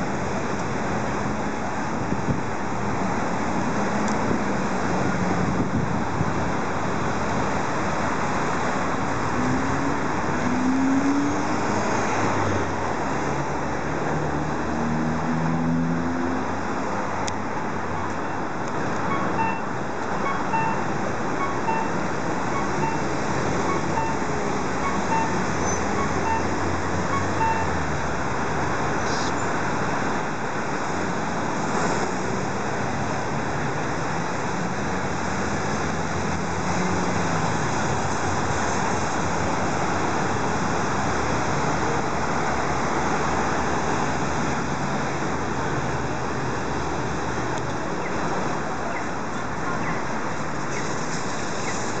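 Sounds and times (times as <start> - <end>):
city street traffic: 0.0 - 52.0
repeating beep: 19.1 - 22.0, 22.6 - 23.1, 23.7 - 24.2, 24.8 - 25.4, 26.0 - 26.6, 27.2 - 27.8.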